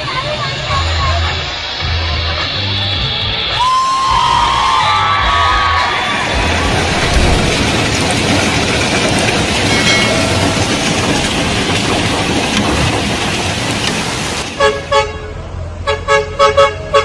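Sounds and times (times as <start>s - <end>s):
heavy hail pelting down: 5.0s - 14.6s
vehicle horn tooting: 14.6s - 17.0s.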